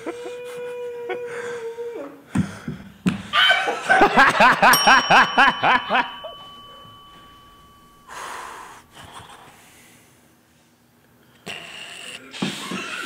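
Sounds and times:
high ringing tone: 4.7s - 8.8s.

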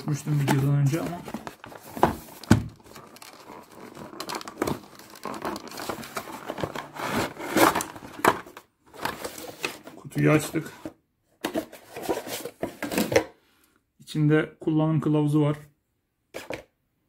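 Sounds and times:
packaging rustling and crinkling: 0.1s - 10.7s.

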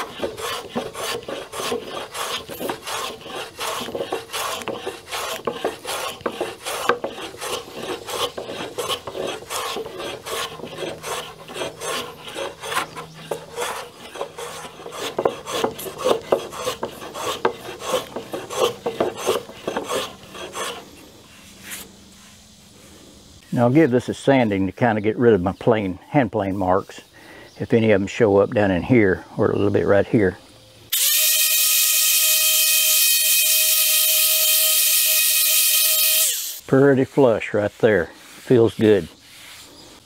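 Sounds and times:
hand plane scraping wood: 0.0s - 22.4s, 36.8s - 40.0s.

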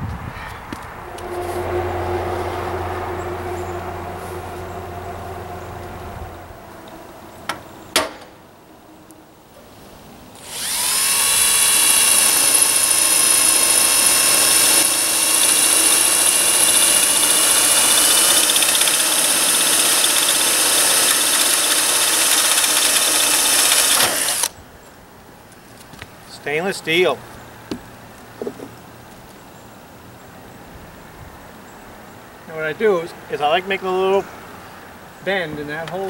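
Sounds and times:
power drill drilling metal: 10.4s - 24.5s.

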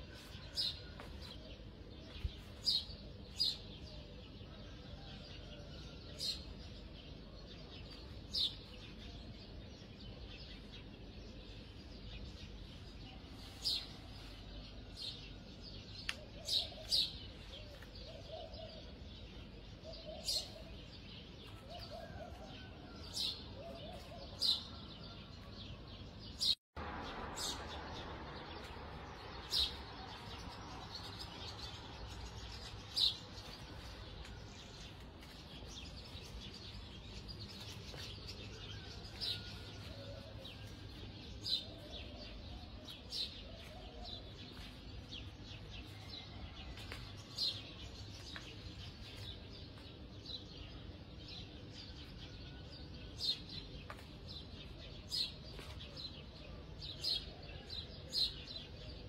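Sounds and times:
small birds chirping: 26.0s - 59.0s.

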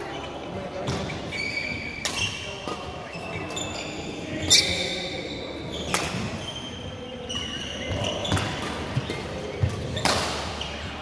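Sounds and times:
shoes squeaking on floor: 0.0s - 11.0s
racket striking shuttlecock: 2.0s - 2.8s, 5.9s - 6.4s, 8.3s - 10.6s.

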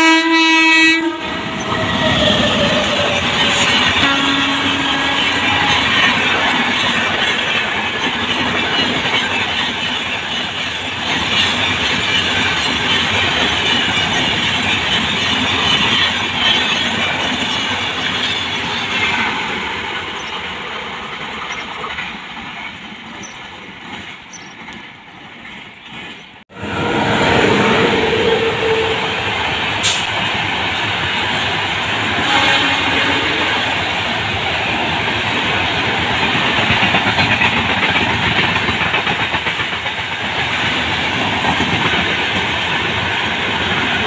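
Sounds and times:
train wheels rumbling on rails: 0.0s - 44.0s
rail-joint clatter: 1.4s - 26.4s, 34.8s - 44.0s.

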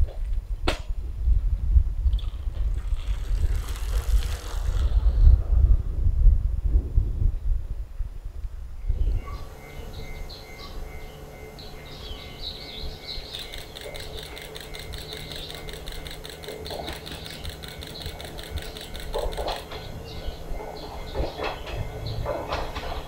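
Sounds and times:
diesel railcar idling hum: 8.9s - 23.0s
rapid mechanical ticking: 13.2s - 21.0s.

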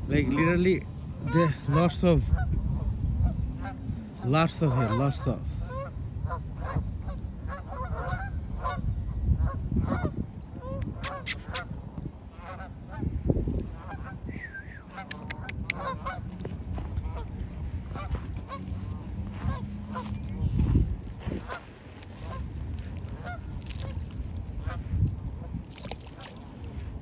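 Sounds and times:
low steady rumble: 0.0s - 4.4s, 11.8s - 27.0s
geese honking: 3.6s - 11.6s, 14.9s - 20.4s, 21.2s - 24.0s.

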